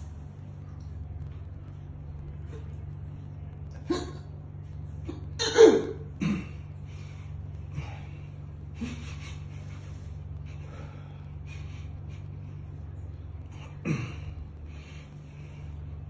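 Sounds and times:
steady low hum: 0:00.0 - 0:16.0
breathing: 0:06.9 - 0:08.4, 0:09.2 - 0:12.0, 0:14.7 - 0:15.9.

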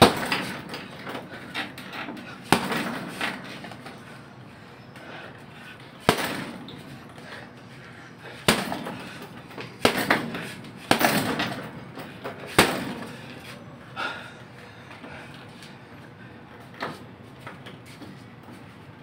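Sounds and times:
punches thudding on heavy bag: 0:00.0 - 0:01.2, 0:02.4 - 0:03.8, 0:06.0 - 0:06.9, 0:08.4 - 0:13.2.

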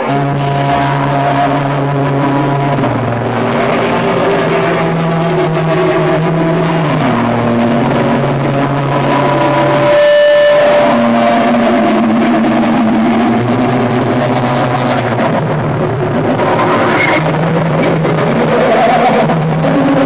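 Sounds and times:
heavy rock band playing: 0:00.0 - 0:20.0.

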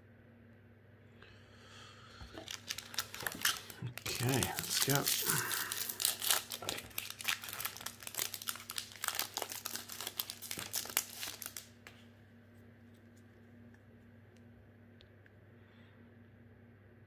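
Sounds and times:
foil wrapper crinkling and tearing: 0:02.2 - 0:12.0.

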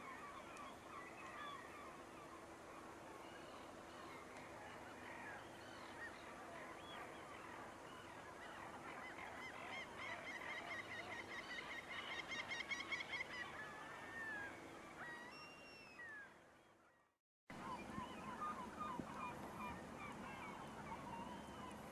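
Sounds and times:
waterbirds calling: 0:00.0 - 0:16.8, 0:17.5 - 0:21.9.

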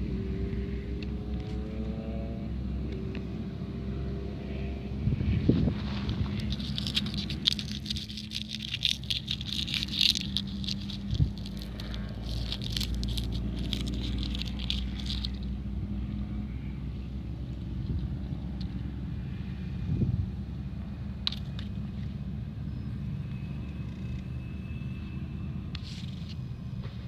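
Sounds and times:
dry husk crackling: 0:05.7 - 0:15.7.

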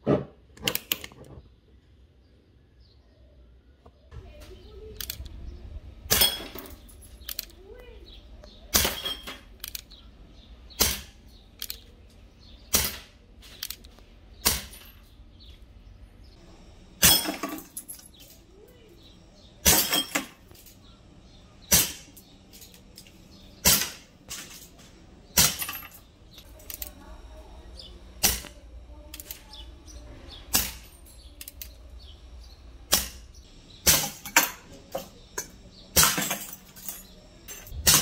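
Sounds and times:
glass bottles breaking: 0:06.1 - 0:07.1, 0:08.8 - 0:09.4, 0:17.0 - 0:18.4, 0:19.6 - 0:20.7, 0:25.4 - 0:26.0, 0:33.9 - 0:38.0
airgun shots: 0:10.8 - 0:11.2, 0:12.7 - 0:13.2, 0:21.7 - 0:22.2, 0:23.6 - 0:24.1, 0:28.2 - 0:28.6, 0:32.9 - 0:34.5, 0:37.8 - 0:38.0.

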